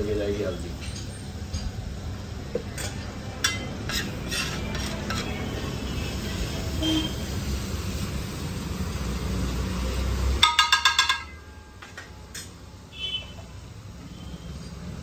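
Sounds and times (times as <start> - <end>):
spatula scraping griddle: 2.7 - 6.0
ringing metal taps: 10.4 - 12.5.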